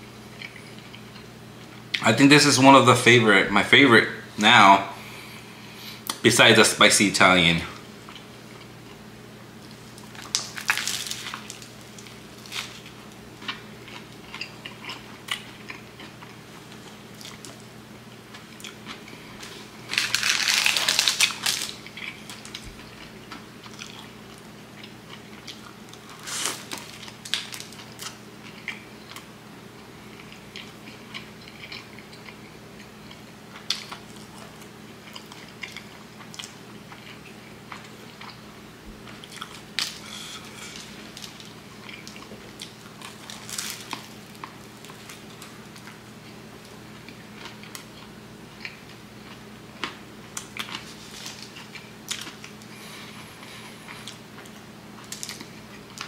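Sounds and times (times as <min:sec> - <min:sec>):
chewing bread sandwich: 0:00.3 - 0:02.0, 0:08.0 - 0:56.0
crunching crust: 0:09.6 - 0:17.7, 0:18.3 - 0:29.3, 0:39.0 - 0:56.0.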